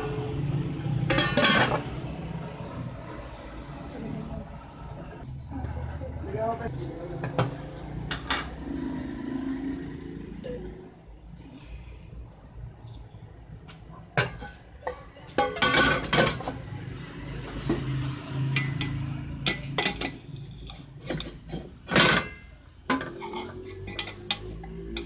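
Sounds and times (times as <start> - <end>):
cooking pot and lid clattering: 1.0 - 2.0, 14.2 - 16.6, 18.5 - 25.0
metal spoon scraping a pot: 18.4 - 25.0.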